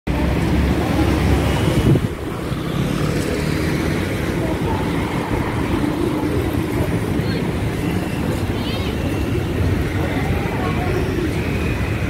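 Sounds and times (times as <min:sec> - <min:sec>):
scooters and cars passing: 0:00.1 - 0:12.0.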